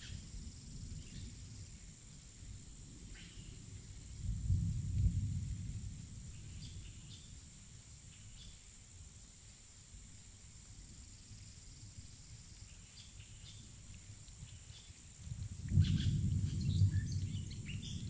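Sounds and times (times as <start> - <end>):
insect drone: 0.0 - 18.0
low rumble: 15.4 - 18.0.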